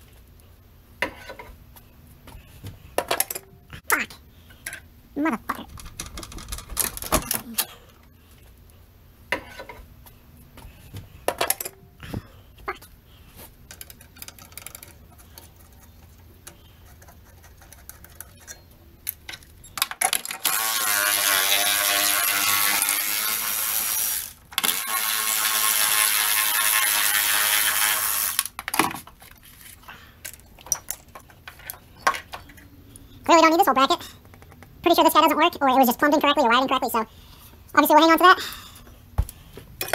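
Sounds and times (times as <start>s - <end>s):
tools clicking and knocking: 3.0s - 3.5s, 11.3s - 11.8s, 13.7s - 15.5s.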